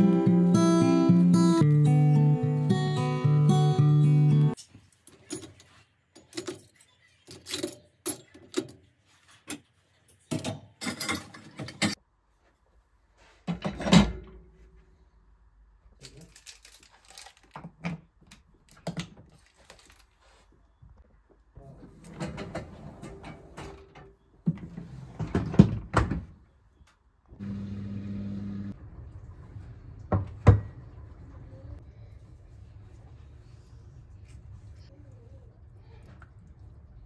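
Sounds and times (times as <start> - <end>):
cutlery and dishes clinking: 9.5 - 12.0.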